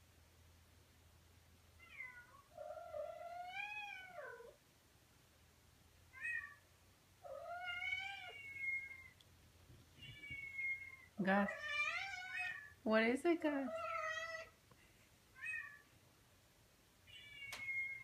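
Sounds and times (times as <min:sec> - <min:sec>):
cat meowing: 0:01.8 - 0:04.6, 0:06.1 - 0:06.6, 0:07.2 - 0:09.2, 0:10.0 - 0:12.8, 0:13.7 - 0:14.6, 0:15.4 - 0:15.9, 0:17.1 - 0:18.0.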